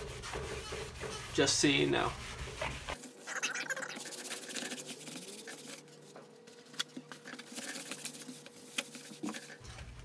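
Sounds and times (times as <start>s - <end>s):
sponge scrubbing vinyl panel: 0.0s - 5.9s.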